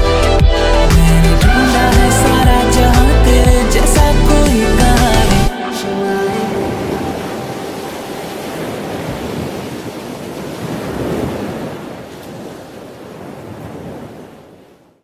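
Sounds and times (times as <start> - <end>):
waves breaking on beach: 5.5 - 15.0.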